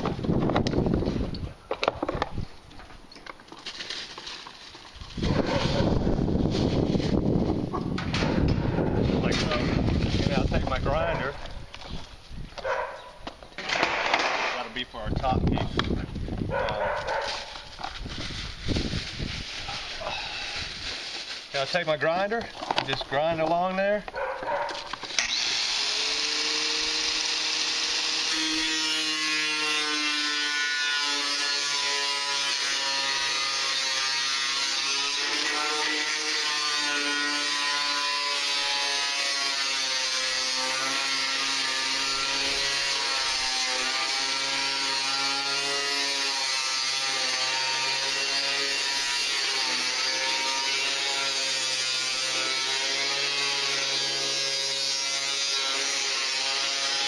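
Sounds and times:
angle grinder cutting sheet metal: 0:24.9 - 0:57.0.

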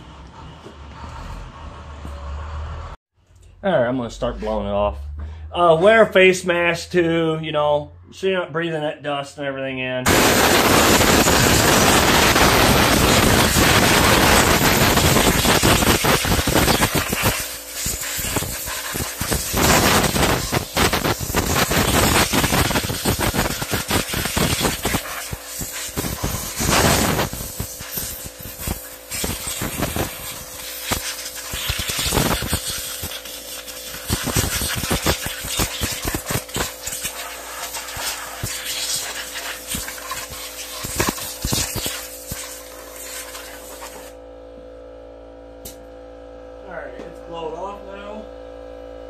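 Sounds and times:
compressed air blow gun hissing: 0:10.1 - 0:44.1.

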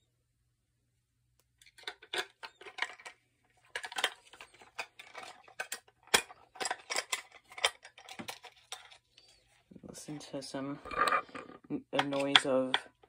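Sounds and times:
batteries clicking and rattling: 0:01.6 - 0:09.5.

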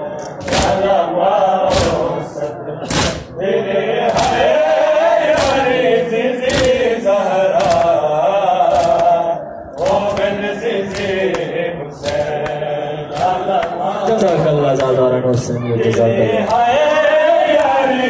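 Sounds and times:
crowd chanting in unison: 0:00.0 - 0:18.0
chest-beating slaps: 0:00.4 - 0:00.8, 0:02.8 - 0:03.3, 0:05.3 - 0:05.7, 0:06.4 - 0:06.8, 0:09.8 - 0:15.0.

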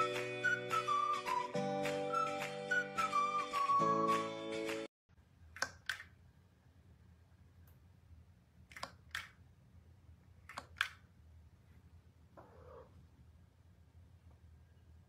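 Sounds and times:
faint low hum: 0:05.2 - 0:15.0.

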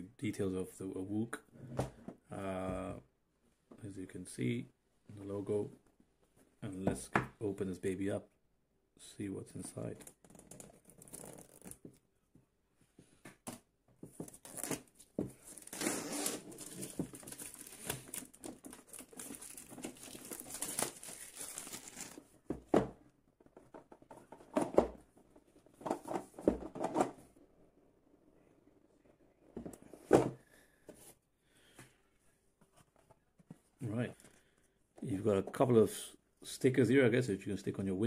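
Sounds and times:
plastic shrink-wrap tearing: 0:15.6 - 0:22.2.

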